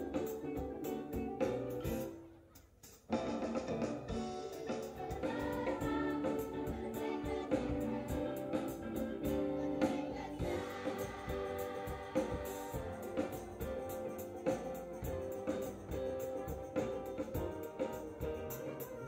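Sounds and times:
children's ensemble playing a song: 0.0 - 19.0
regular beat: 0.0 - 19.0
voices singing along: 4.4 - 17.4.

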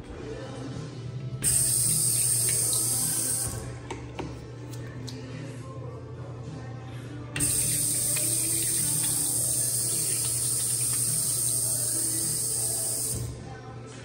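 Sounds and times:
faucet water running into sink: 1.4 - 3.6, 7.4 - 13.3.

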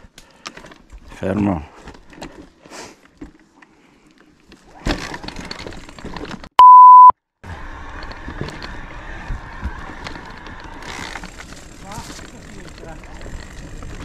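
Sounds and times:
mountain bike rattling on dirt: 0.3 - 6.5, 7.5 - 14.0
electronic bleep tone: 6.6 - 7.1.

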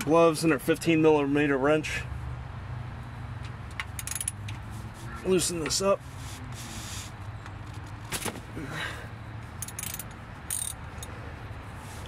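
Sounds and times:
ratchet wrench clicking: 3.8 - 4.6, 9.6 - 11.1.

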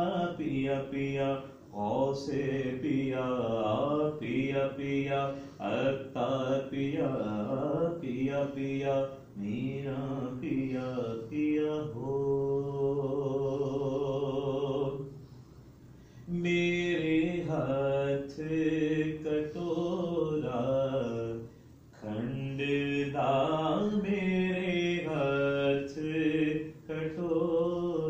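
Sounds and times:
man chanting: 0.0 - 15.1, 16.3 - 28.0.

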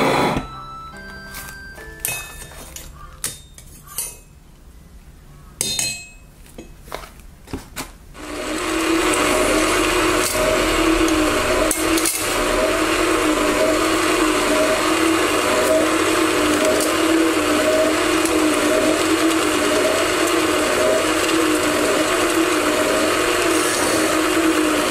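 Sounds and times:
band saw running: 8.2 - 24.9.

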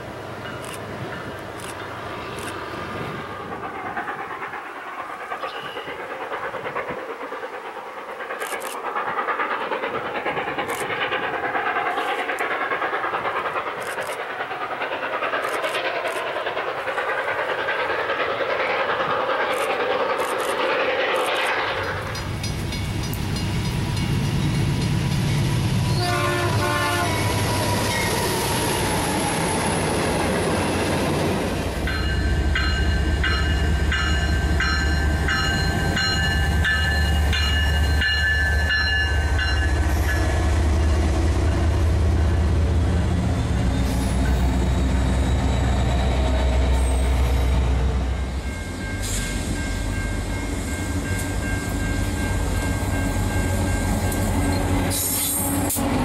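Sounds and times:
diesel locomotive rumble: 0.0 - 56.0
steam locomotive hiss and rumble: 0.0 - 56.0
sharp clicks: 15.4 - 16.4.

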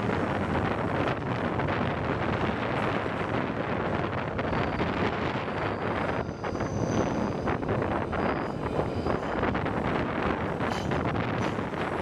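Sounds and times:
train coaches running on track: 0.0 - 12.0
wind buffeting microphone: 0.0 - 12.0.

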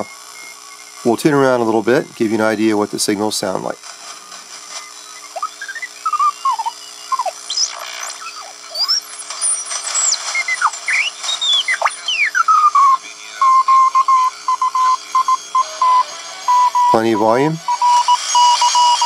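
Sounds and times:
radio beat notes gliding in pitch: 1.3 - 19.0
morse code tone: 9.2 - 19.0.

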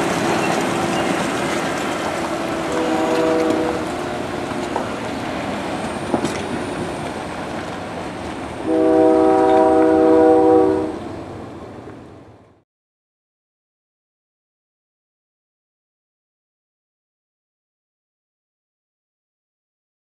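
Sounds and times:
horn-like tone: 2.6 - 3.9, 8.7 - 11.0.

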